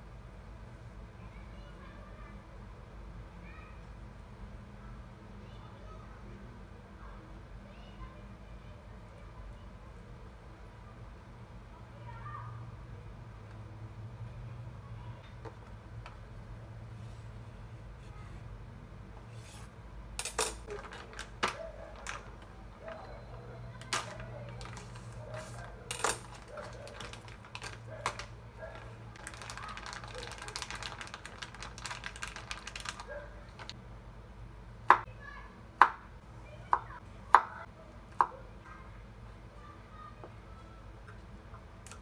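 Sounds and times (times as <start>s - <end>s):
plastic packaging crinkling: 20.3s - 22.4s, 23.8s - 33.8s.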